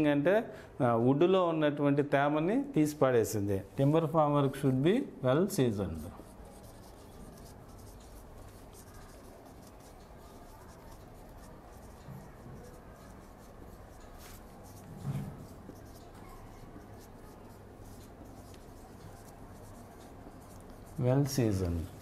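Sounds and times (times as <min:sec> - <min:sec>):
marker pen writing on whiteboard: 0:05.4 - 0:22.0.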